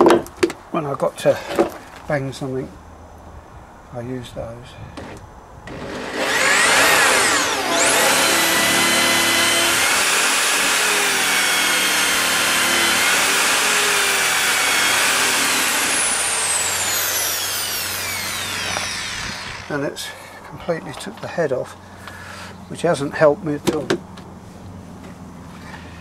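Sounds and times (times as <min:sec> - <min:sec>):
power drill motor whine: 0:05.0 - 0:19.8.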